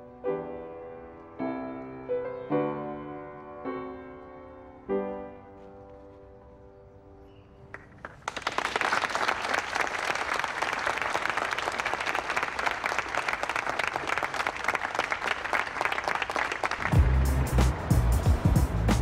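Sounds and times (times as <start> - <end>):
crowd applause: 7.7 - 19.0.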